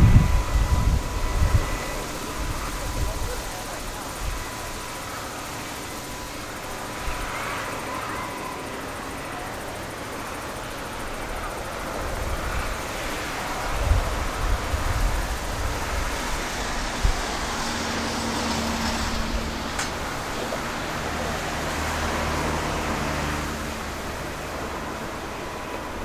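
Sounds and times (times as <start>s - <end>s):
wind buffeting microphone: 0.0s - 5.0s, 11.4s - 26.0s
vehicle engine hum: 0.0s - 26.0s.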